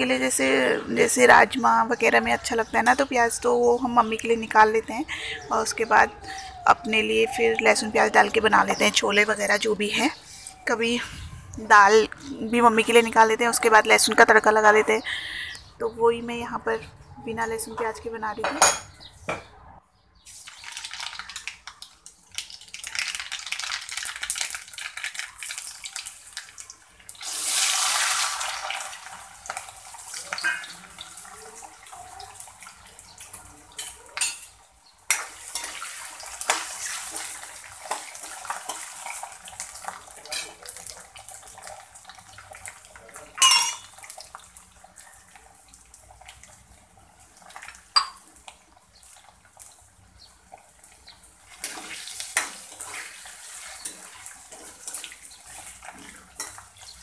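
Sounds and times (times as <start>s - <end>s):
oil sizzling in a pan: 20.2s - 57.0s
utensil clinking on a pan: 33.7s - 35.9s, 39.8s - 40.8s, 43.2s - 44.2s, 47.9s - 48.2s.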